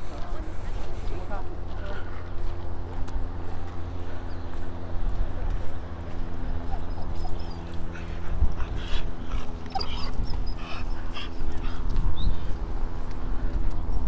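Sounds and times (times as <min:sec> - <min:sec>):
wind on microphone: 0:08.1 - 0:14.0
dog whining and yipping: 0:09.6 - 0:11.3.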